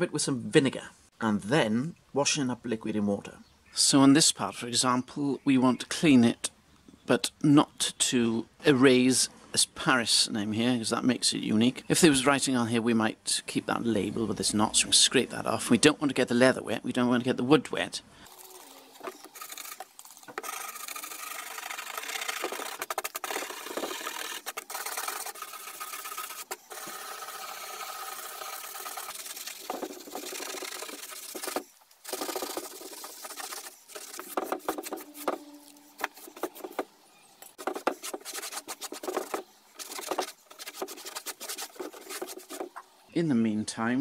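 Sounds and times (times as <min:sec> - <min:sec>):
hand scraper scratching label: 0:19.0 - 0:36.8, 0:37.5 - 0:42.7
cloth scrubbing panel: 0:20.4 - 0:36.9, 0:37.5 - 0:42.8
towel wiping: 0:27.9 - 0:36.8, 0:37.5 - 0:42.7.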